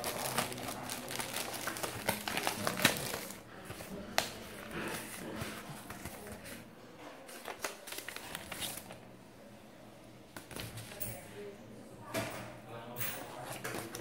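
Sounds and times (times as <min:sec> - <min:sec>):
plastic bag crinkling: 0:00.0 - 0:06.6, 0:07.3 - 0:09.0
paper rustling: 0:00.0 - 0:09.0, 0:13.3 - 0:14.0.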